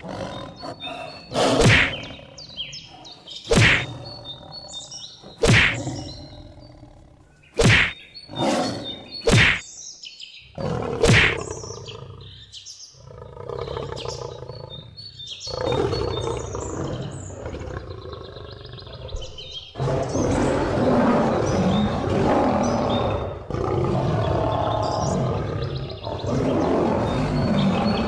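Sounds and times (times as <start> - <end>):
animal roars and growls: 0.0 - 9.6, 10.5 - 28.0
bird chirps: 0.0 - 23.5, 24.1 - 28.0
sharp cartoon hits: 1.6 - 2.0, 3.5 - 3.9, 5.4 - 5.8, 7.6 - 8.0, 9.3 - 9.6, 11.0 - 11.4.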